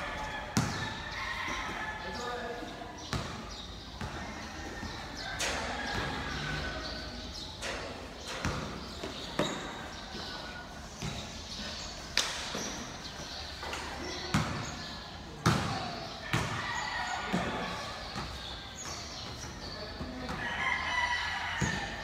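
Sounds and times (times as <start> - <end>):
players' voices: 0.0 - 22.0
basketball bouncing on floor: 0.6 - 0.8.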